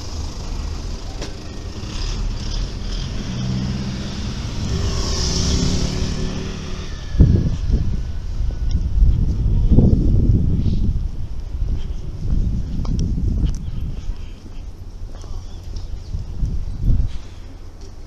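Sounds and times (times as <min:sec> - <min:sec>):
van engine passing: 0:00.0 - 0:11.2
low road rumble: 0:00.0 - 0:18.0.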